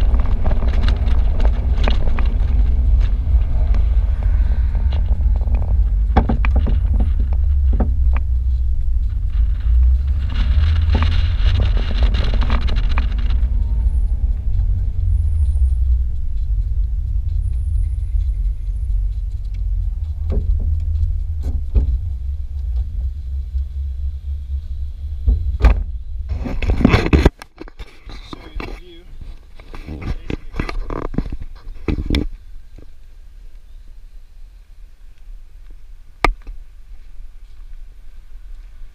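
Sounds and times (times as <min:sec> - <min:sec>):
wind buffeting microphone: 0:00.0 - 0:27.3
road and engine rumble: 0:00.0 - 0:38.9.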